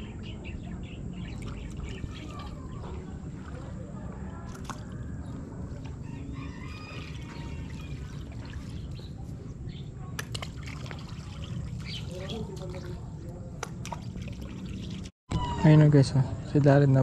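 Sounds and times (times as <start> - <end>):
floodwater lapping and trickling: 0.0 - 15.2.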